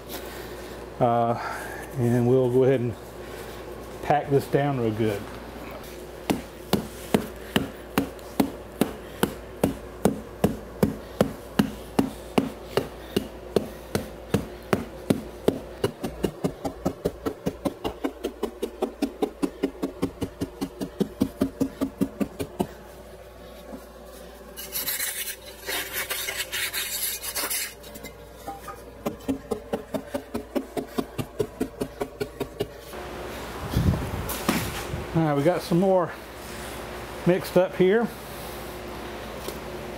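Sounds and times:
wooden mallet pounding: 0:06.3 - 0:22.7.

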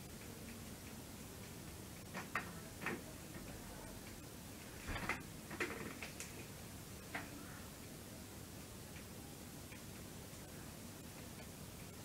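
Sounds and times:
faint clicks and light knocks: 0:00.0 - 0:08.0
room hiss: 0:00.0 - 0:12.0.

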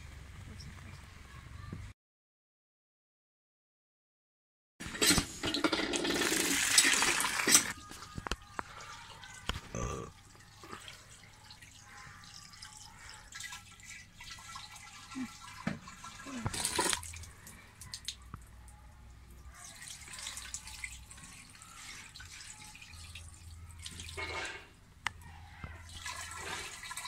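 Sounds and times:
water dripping and splashing: 0:06.0 - 0:24.4, 0:25.1 - 0:27.0.

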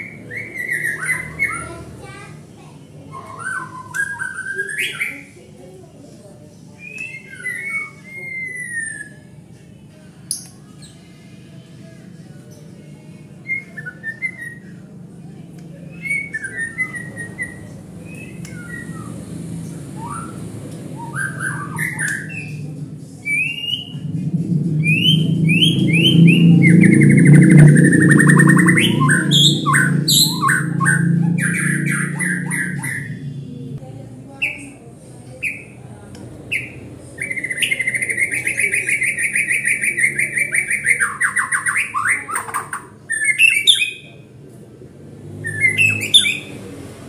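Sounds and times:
bird singing whistled notes: 0:00.0 - 0:01.6, 0:03.1 - 0:05.3, 0:06.8 - 0:09.3, 0:13.4 - 0:14.8, 0:15.9 - 0:24.1, 0:24.8 - 0:33.5, 0:36.5 - 0:44.1, 0:45.4 - 0:46.6
low steady hum: 0:14.8 - 0:37.6.

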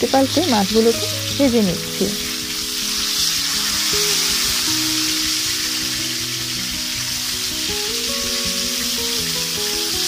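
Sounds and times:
background music: 0:00.0 - 0:10.0
fish sizzling in oil: 0:00.0 - 0:10.0.

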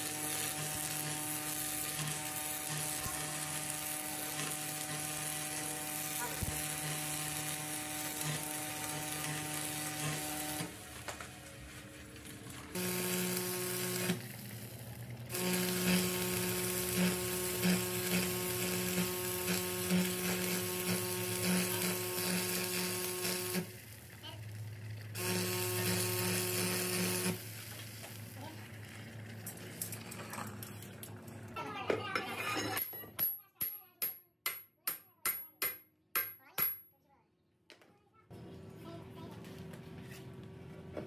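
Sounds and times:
welding arc crackling and hissing: 0:00.0 - 0:31.0
electrical buzz: 0:12.5 - 0:29.5.

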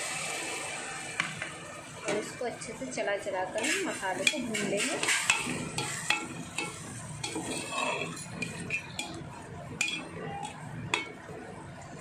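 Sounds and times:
metal spoon scraping metal pot: 0:03.6 - 0:09.2, 0:09.8 - 0:11.2.

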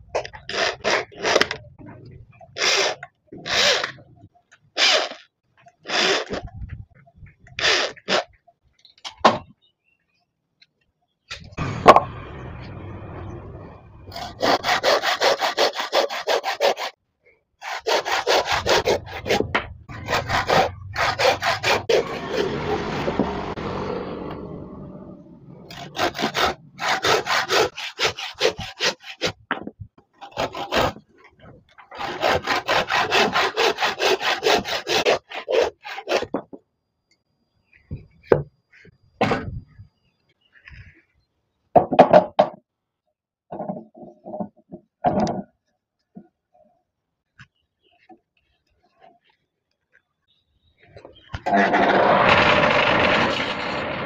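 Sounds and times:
hand saw cutting wood: 0:00.4 - 0:01.6, 0:02.6 - 0:04.0, 0:04.8 - 0:05.2, 0:05.8 - 0:06.4, 0:14.1 - 0:17.0, 0:17.6 - 0:24.4, 0:25.7 - 0:29.4, 0:30.2 - 0:31.2, 0:31.9 - 0:36.4, 0:51.4 - 0:54.0.

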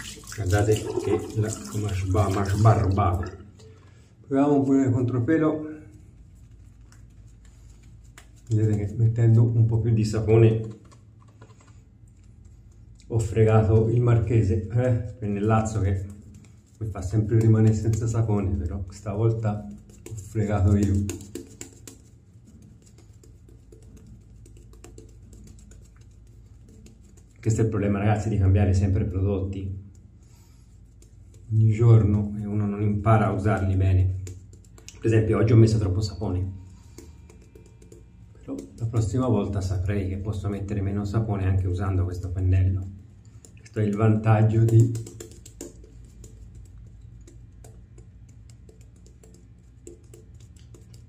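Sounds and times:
shaving brush swishing lather: 0:00.0 - 0:03.0
shaving brush lathering soap: 0:00.0 - 0:03.2, 0:06.0 - 0:09.4, 0:15.1 - 0:28.3, 0:29.9 - 0:35.9, 0:36.7 - 0:41.4, 0:42.2 - 0:51.0.

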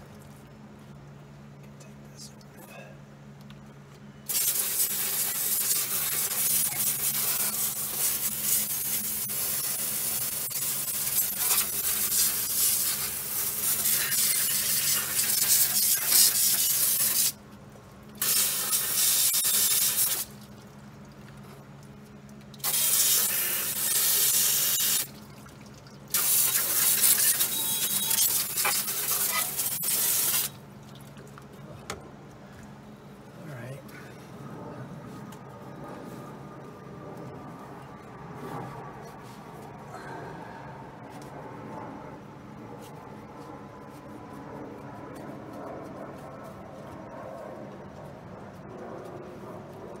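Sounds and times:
hose spray hissing: 0:04.3 - 0:17.4, 0:18.2 - 0:20.3, 0:22.6 - 0:25.1, 0:26.1 - 0:30.6.

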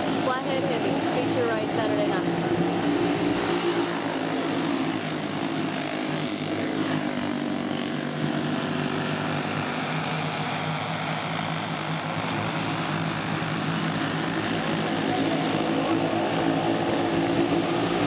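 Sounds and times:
go-kart engines racing: 0:00.0 - 0:18.0.

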